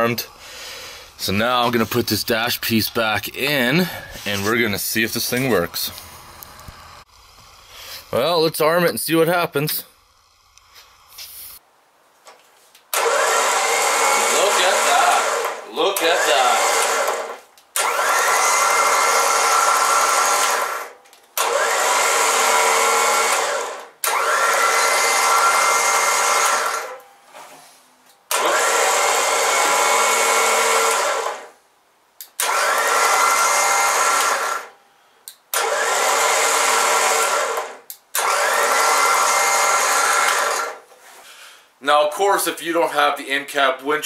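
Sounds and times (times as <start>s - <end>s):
electric winch motor whining: 3.6s - 8.4s, 9.8s - 11.2s, 12.9s - 27.0s, 28.3s - 31.5s, 32.4s - 34.7s, 35.5s - 40.8s.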